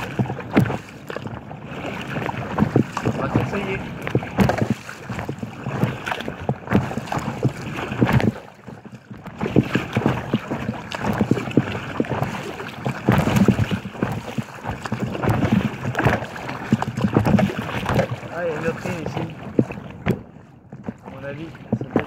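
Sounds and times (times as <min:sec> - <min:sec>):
waves slapping against kayak hull: 0:00.0 - 0:22.0.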